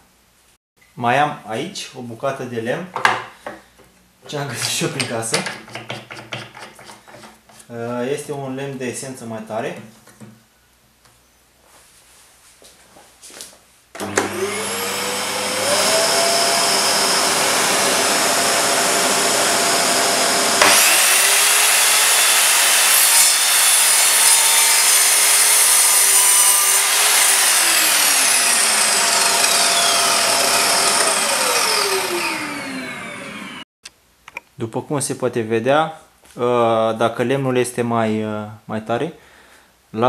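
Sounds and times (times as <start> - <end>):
mitre saw motor whining: 14.0 - 33.6
saw blade cutting wood: 14.0 - 33.6.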